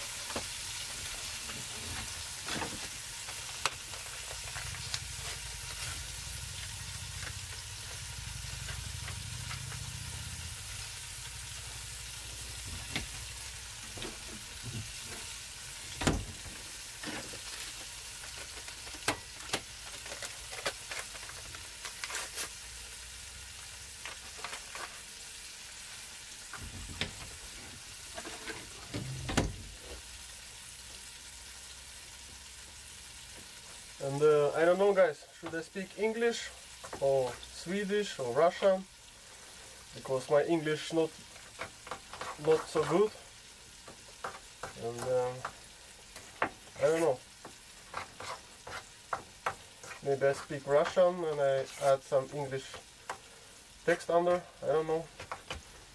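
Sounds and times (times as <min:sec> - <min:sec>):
steady hiss: 0:00.0 - 0:55.9
spoon scraping in bowl: 0:47.9 - 0:48.9.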